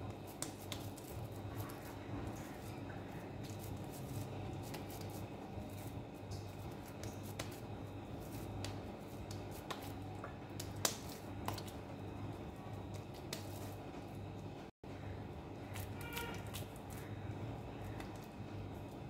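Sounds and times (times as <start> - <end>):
hands squelching minced meat: 0.0 - 13.8
steady low hum: 0.0 - 19.0.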